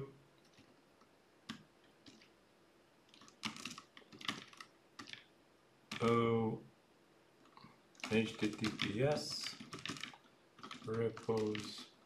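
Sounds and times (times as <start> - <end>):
computer keyboard keystrokes: 1.5 - 2.3, 3.1 - 5.3, 5.9 - 6.2, 8.0 - 11.9.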